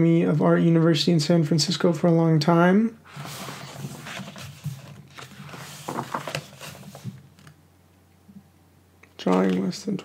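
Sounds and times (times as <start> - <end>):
book pages flipping: 3.1 - 7.6.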